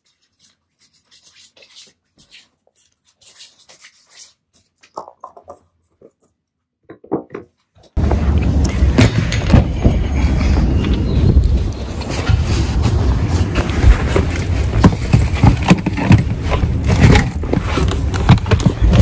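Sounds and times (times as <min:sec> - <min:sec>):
hands rubbing skin: 0:00.0 - 0:05.1
loud outdoor rumble: 0:08.0 - 0:18.6.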